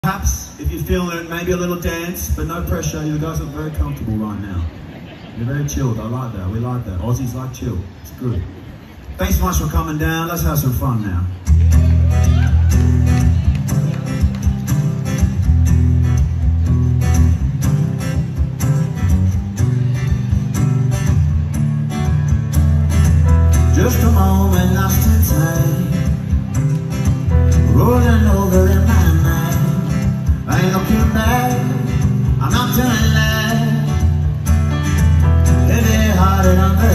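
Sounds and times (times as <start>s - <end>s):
folk-pop band playing: 11.3s - 36.9s.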